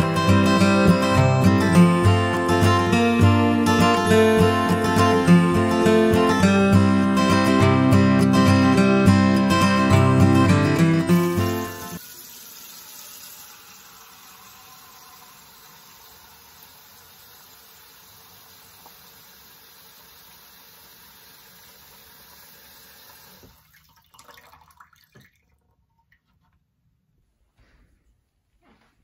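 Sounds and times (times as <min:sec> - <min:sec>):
faucet running into metal bowl: 0:11.1 - 0:25.4
water trickling and dripping: 0:11.9 - 0:26.3.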